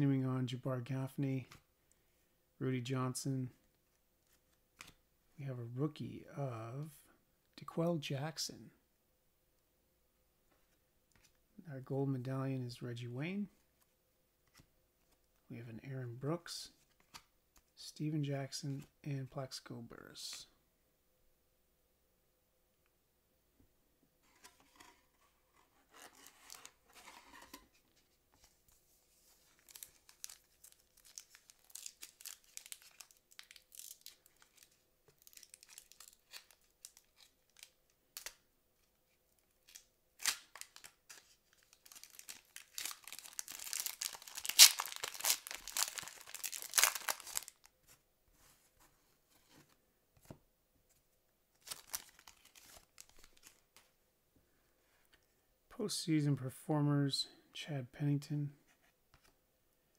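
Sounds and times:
paper cards rustling: 24.2s - 38.4s, 39.6s - 50.4s, 51.6s - 53.9s
foil wrapper tearing and crinkling: 29.6s - 38.3s, 39.6s - 47.6s, 51.6s - 53.6s.

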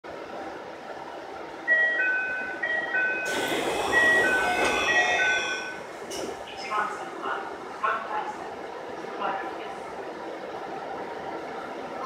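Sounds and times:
two-note door chime: 1.7s - 5.8s
train doors sliding open: 2.7s - 6.7s.

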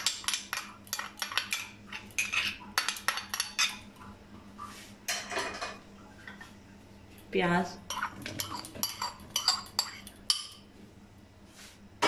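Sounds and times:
spoon clinking on glass bowl: 0.0s - 3.8s, 7.9s - 10.6s
spoon scraping metal pot: 0.0s - 4.1s, 7.8s - 10.6s.

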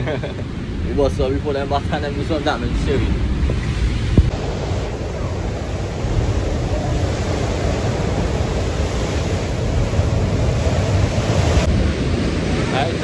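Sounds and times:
surf breaking on rocks: 4.2s - 13.0s.

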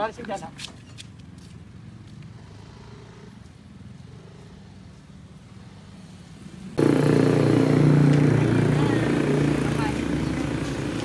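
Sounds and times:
car engine idling: 6.8s - 11.0s.

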